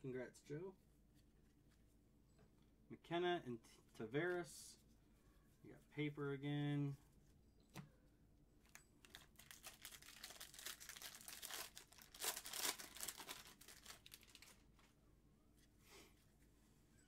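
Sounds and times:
foil wrapper crinkling: 8.7 - 14.6.

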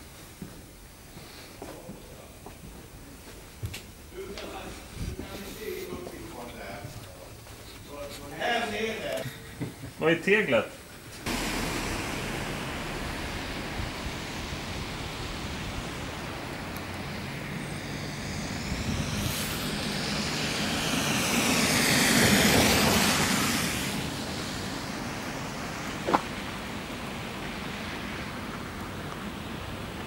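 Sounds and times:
city traffic noise: 10.8 - 30.0
vehicle passing by: 11.2 - 30.0.

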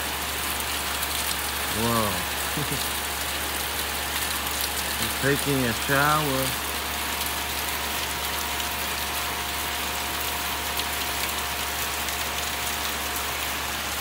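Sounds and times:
heavy rain pouring: 0.0 - 14.0.

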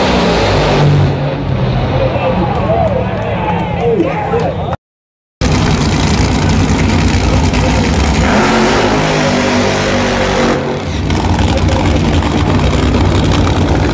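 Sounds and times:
racing car engine at full throttle: 0.0 - 4.0, 5.4 - 13.9
engine idling: 5.4 - 8.2, 10.8 - 13.9.

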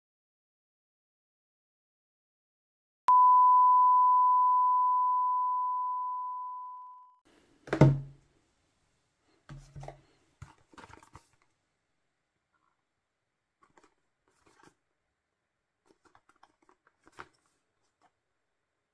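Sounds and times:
electronic beep tone: 3.1 - 7.2
cardboard box handled: 9.5 - 11.4.

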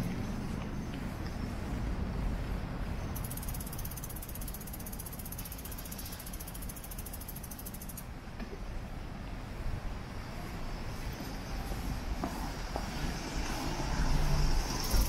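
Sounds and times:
bicycle freewheel ticking: 3.2 - 8.1.

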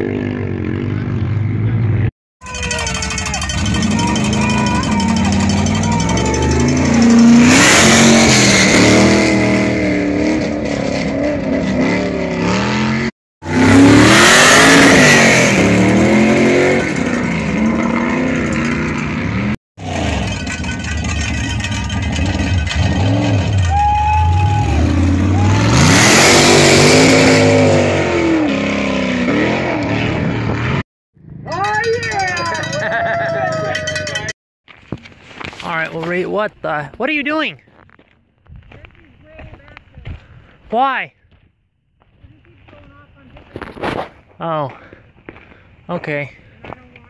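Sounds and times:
buggy engines revving hard: 0.0 - 30.8.

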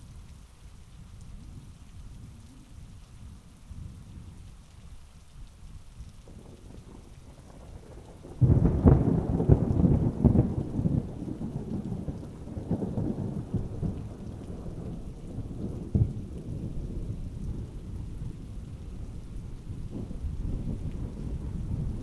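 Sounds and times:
steady rain: 0.0 - 22.0
thunderclap: 6.3 - 22.0.

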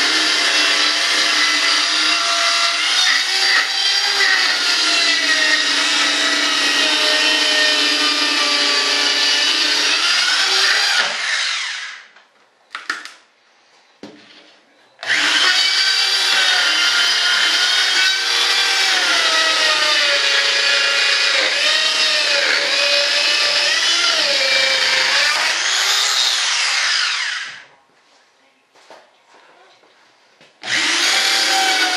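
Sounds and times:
power tool whining: 0.0 - 12.1, 15.0 - 27.6, 30.6 - 31.9.

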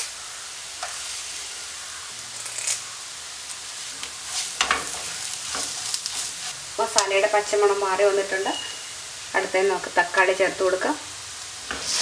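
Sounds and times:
masala sizzling in a frying pan: 0.0 - 12.0
wooden spatula scraping a pan: 4.0 - 6.6.

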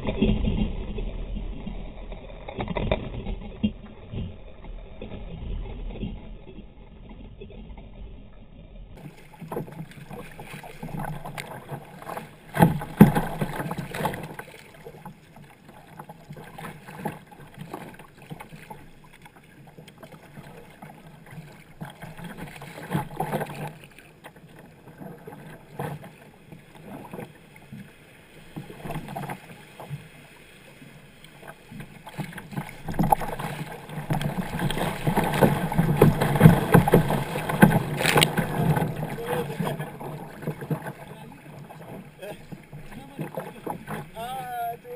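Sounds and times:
water splashing against kayak hull: 0.0 - 44.9.

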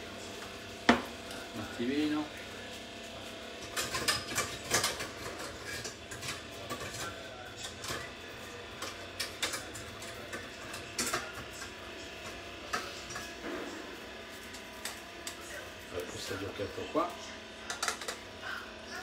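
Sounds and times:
kitchen utensils clicking and knocking: 3.6 - 13.4, 17.6 - 18.3.

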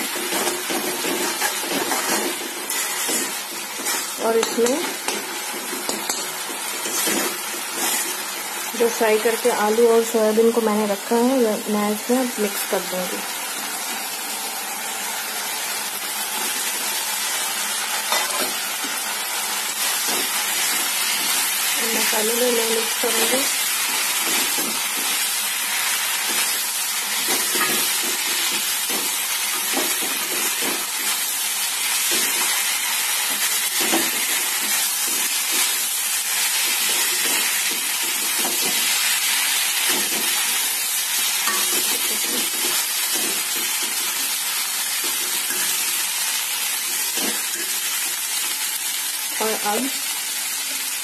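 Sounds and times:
food sizzling in a pan: 0.0 - 51.0
metal spatula scraping pan: 0.3 - 6.2.

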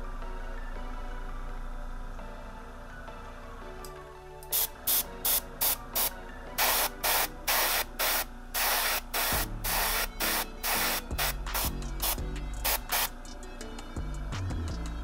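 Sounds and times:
airbrush spraying in hissing puffs: 4.5 - 13.1.

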